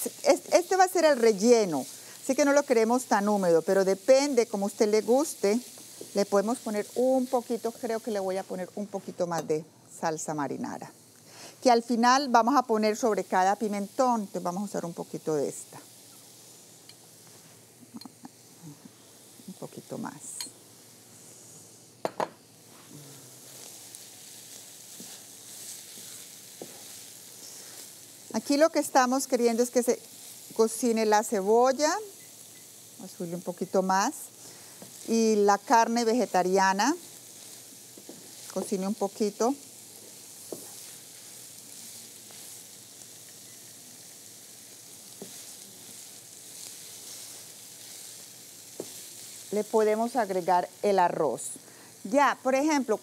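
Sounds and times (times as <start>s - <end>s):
filling sizzling in a skillet: 0.0s - 53.0s
wooden spatula stirring: 23.5s - 28.4s, 37.4s - 39.4s, 40.0s - 42.7s, 45.1s - 49.6s.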